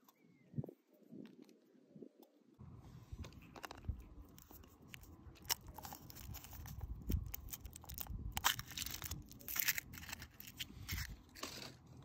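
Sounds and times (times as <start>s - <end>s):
foil wrapper crinkling and tearing: 3.6s - 12.0s.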